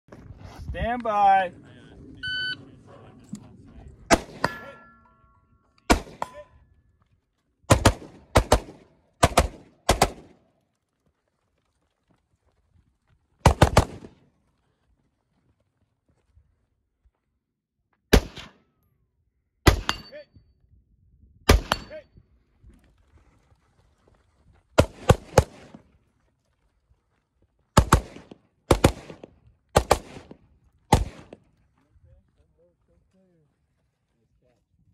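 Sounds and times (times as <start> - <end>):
rifle shots: 4.1 - 4.8, 5.9 - 6.4, 7.7 - 10.4, 13.4 - 14.2, 18.1 - 18.6, 19.7 - 20.1, 24.8 - 25.8, 27.8 - 31.4
carbine gunshots: 4.1 - 4.9, 5.9 - 6.4, 7.7 - 10.4, 13.4 - 14.2, 24.8 - 25.8, 27.8 - 31.4
steel targets ringing: 4.2 - 6.4.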